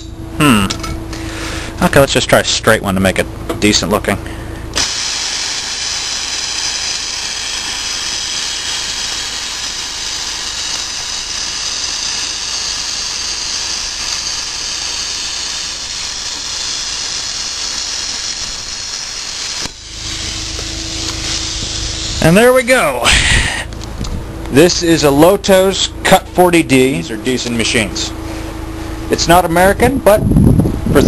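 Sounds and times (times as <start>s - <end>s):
plasma cutter hissing: 4.7s - 23.2s.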